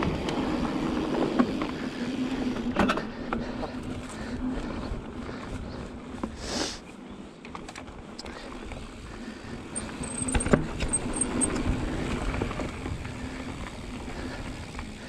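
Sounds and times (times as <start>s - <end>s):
bike tyres on dirt: 0.0s - 15.0s
bike frame rattling: 9.4s - 15.0s.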